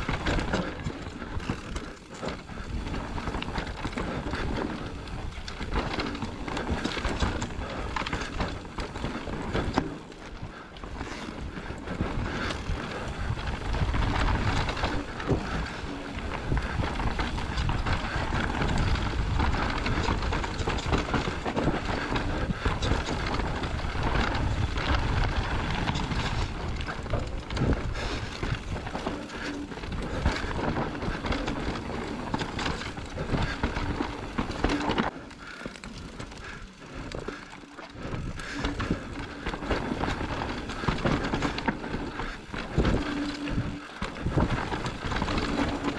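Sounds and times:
bike rattling over bumps: 0.0 - 45.9
tyres crunching over rocks: 0.0 - 45.9
wind buffeting microphone: 10.4 - 37.4, 38.0 - 45.9.

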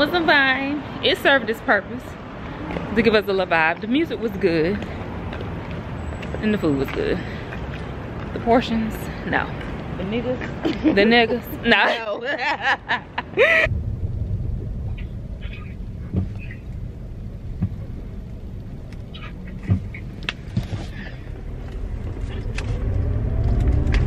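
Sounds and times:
car engine rumble from cabin: 13.6 - 24.0.

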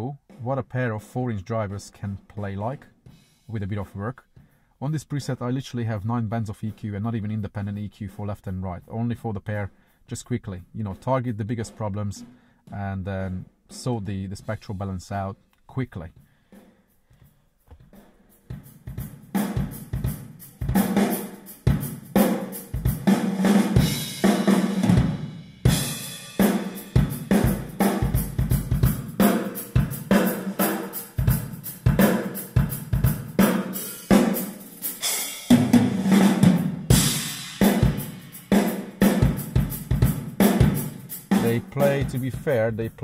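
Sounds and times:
drum-heavy music on car speakers: 17.9 - 42.8.

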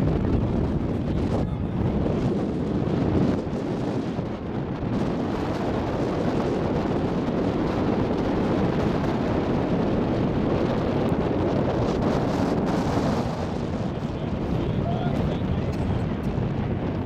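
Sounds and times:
ferry engine: 0.0 - 17.0
wind buffeting microphone: 0.0 - 17.0.

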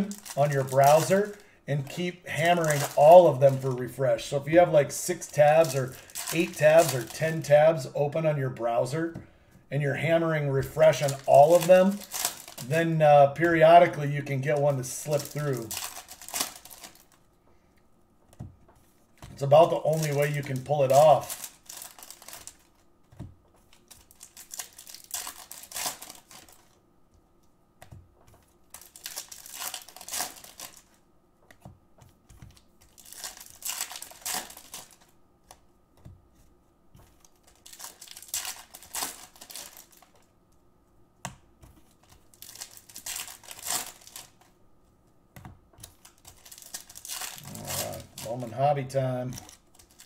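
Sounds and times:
foil packs tearing and crinkling: 0.0 - 7.6, 10.1 - 17.2, 19.3 - 22.8, 23.7 - 26.8, 28.7 - 31.0, 32.9 - 35.1, 37.3 - 40.3, 42.3 - 44.4, 46.0 - 50.0.

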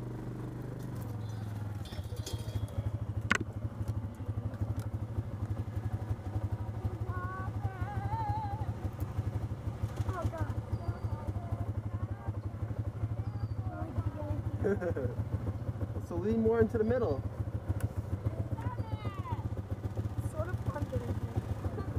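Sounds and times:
utility vehicle engine running: 0.0 - 21.9.

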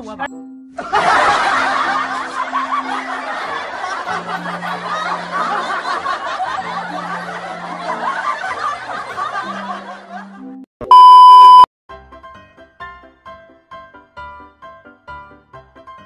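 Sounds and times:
background music with low notes: 0.0 - 10.6, 11.9 - 16.0
laughter sound effect: 0.8 - 10.4
steady electronic beep: 10.8 - 11.7.

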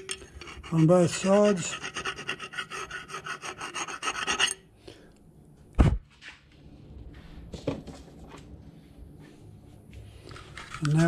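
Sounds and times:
hand file rasping on brass: 0.0 - 4.6.

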